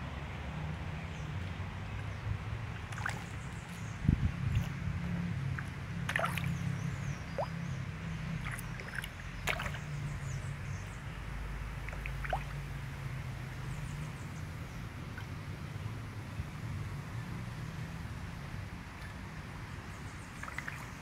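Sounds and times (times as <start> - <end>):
fish splashing at water surface: 2.7 - 3.7, 4.4 - 4.8, 5.5 - 7.6, 8.3 - 10.0, 11.8 - 12.7, 20.3 - 21.0.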